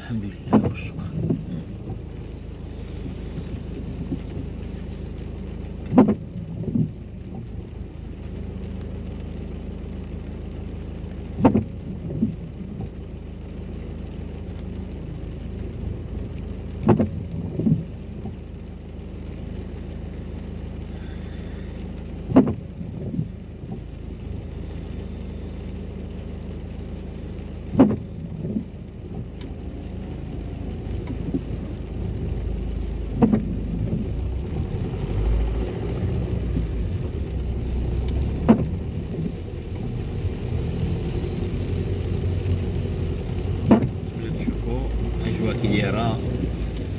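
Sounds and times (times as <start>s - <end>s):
low hum of car: 0.0s - 46.9s
rain: 0.0s - 46.9s
windscreen wipers knocking: 0.2s - 5.0s, 5.8s - 7.6s, 11.2s - 13.1s, 15.6s - 18.5s, 22.1s - 24.0s, 27.6s - 46.9s.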